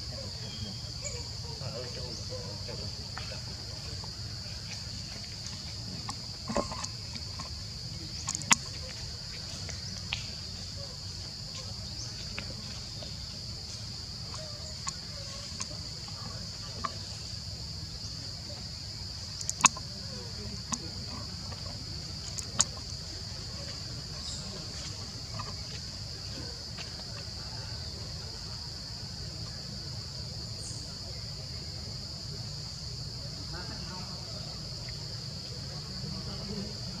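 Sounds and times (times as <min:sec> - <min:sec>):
forest insects droning: 0:00.0 - 0:37.0
sharp clicks: 0:19.4 - 0:19.9.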